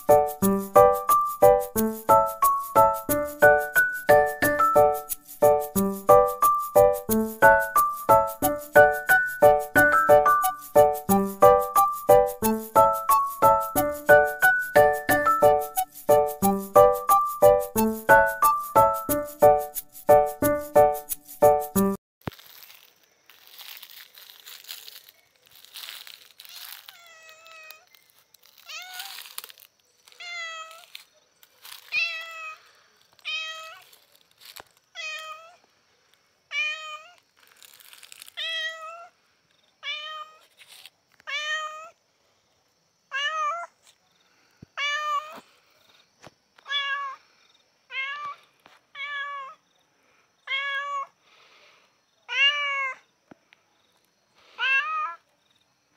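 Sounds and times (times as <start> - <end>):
rustling: 22.2 - 35.4, 37.1 - 38.5, 40.3 - 41.3
cat meowing: 33.2 - 33.9, 35.0 - 35.6, 36.5 - 37.2, 39.8 - 40.4, 41.3 - 42.0, 43.1 - 43.7, 44.8 - 45.4, 46.7 - 47.2, 47.9 - 48.4, 49.0 - 49.6, 50.5 - 51.1, 52.3 - 53.0, 54.6 - 55.2.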